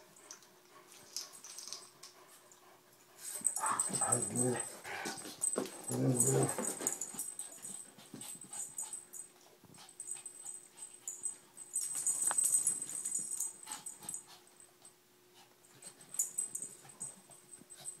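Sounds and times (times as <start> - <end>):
dogs play-fighting scuffling: 3.2 - 14.5.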